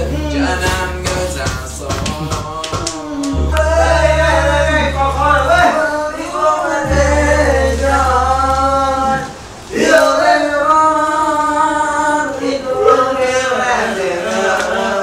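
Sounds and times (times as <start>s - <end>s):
men singing together: 0.0s - 15.0s
low steady hum: 3.2s - 12.3s.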